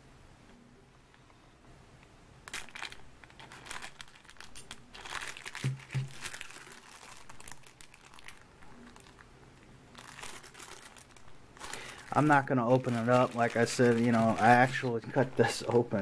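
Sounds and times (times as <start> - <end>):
plastic packaging crinkling: 2.4 - 16.0.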